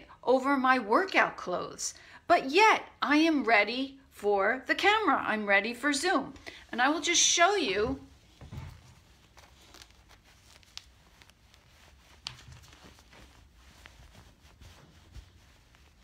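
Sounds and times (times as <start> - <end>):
faint fabric rustling: 6.5 - 16.0.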